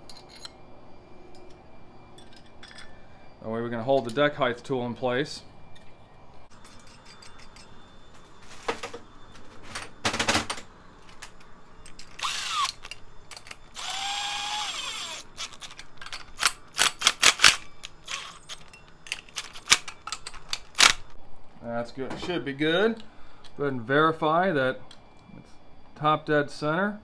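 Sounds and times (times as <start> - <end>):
metal clinks and knocks: 0.0 - 0.6, 2.2 - 3.0, 5.7 - 13.7, 15.5 - 20.7
cordless power driver spinning: 12.2 - 12.9, 13.7 - 16.4, 17.0 - 18.6.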